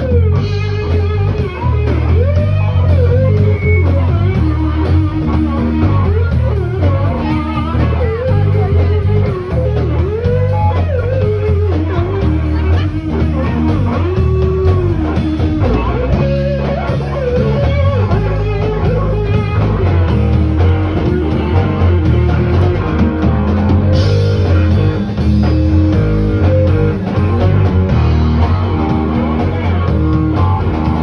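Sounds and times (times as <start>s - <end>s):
electric guitar bending notes: 0.0s - 31.0s
live rock band playing: 0.0s - 31.0s.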